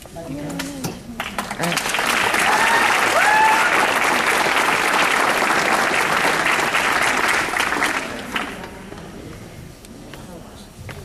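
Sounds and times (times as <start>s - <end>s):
audience applauding: 1.2s - 8.9s.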